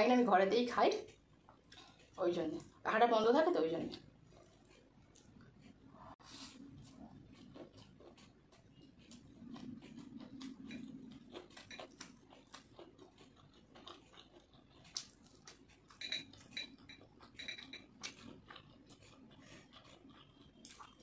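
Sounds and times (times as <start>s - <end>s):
chewing and smacking: 0.9s - 2.8s, 3.9s - 21.0s.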